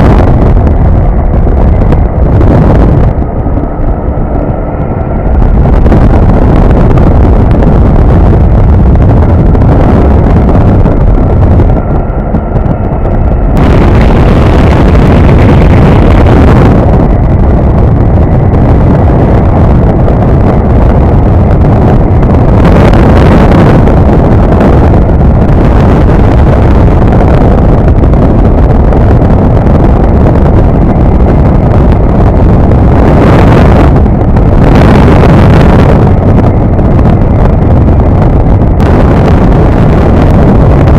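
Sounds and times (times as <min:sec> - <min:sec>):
aircraft engine and propeller: 0:00.0 - 0:40.9
wind buffeting microphone: 0:00.0 - 0:40.9.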